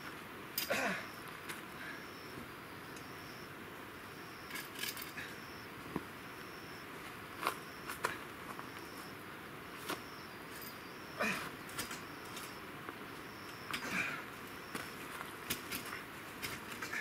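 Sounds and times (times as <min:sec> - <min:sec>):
insect chirping: 0:00.6 - 0:17.0
clicks and rustles of tent fittings: 0:09.8 - 0:14.0, 0:14.7 - 0:17.0.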